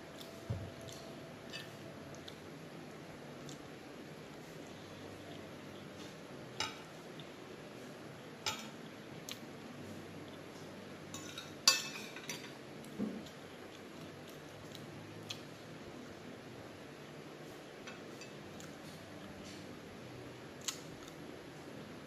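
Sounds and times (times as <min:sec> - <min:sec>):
metal fork clinking on plate: 0:11.1 - 0:12.6.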